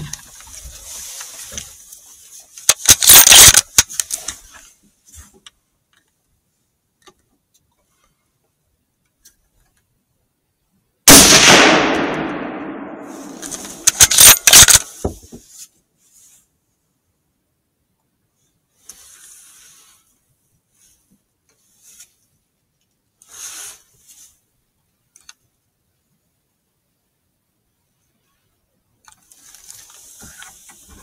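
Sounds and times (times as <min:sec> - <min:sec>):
faint rustles: 0:00.0 - 0:06.8, 0:13.0 - 0:17.1, 0:18.2 - 0:24.7, 0:28.0 - 0:31.0
rifle shot: 0:11.1 - 0:14.9
rifle action clacking: 0:13.2 - 0:14.9.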